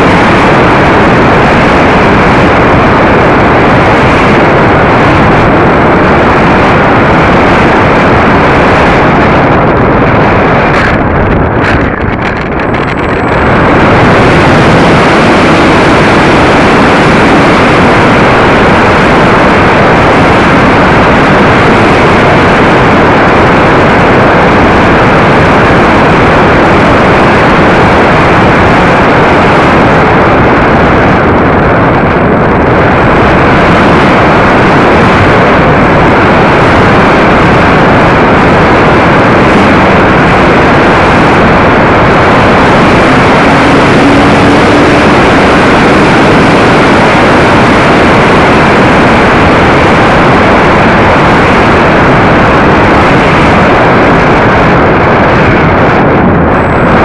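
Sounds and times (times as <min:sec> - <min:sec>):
wind rushing: 0:00.0 - 0:21.7, 0:37.0 - 0:57.0
model airplane motor roaring: 0:00.0 - 0:28.2, 0:37.3 - 0:50.5.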